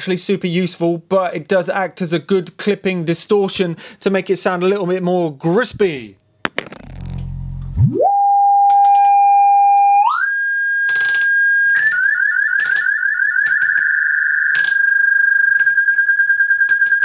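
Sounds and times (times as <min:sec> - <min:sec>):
electronic oscillator tone: 0:06.6 - 0:10.3.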